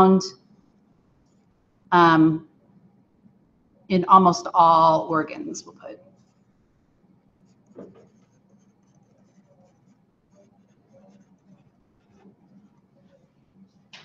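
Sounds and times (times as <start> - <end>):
low steady hum: 0.0 - 14.0
stylus scratching while writing: 6.0 - 6.6, 7.4 - 13.9.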